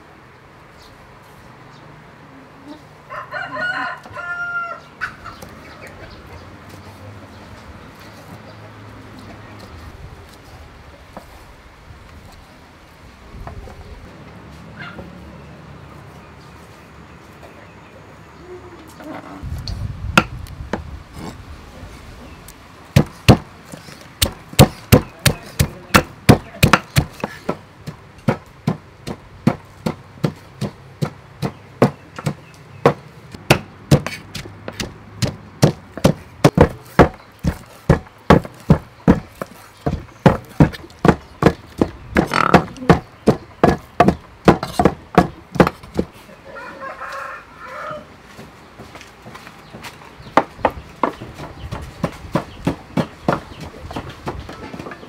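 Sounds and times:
pestle pounding in mortar: 22.9 - 46.1, 49.7 - 55.0
cleaver chopping on wooden board: 23.0 - 46.1, 49.7 - 55.0.

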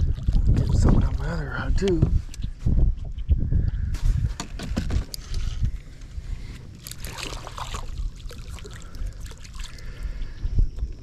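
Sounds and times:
fish splashing at water surface: 6.8 - 10.0.

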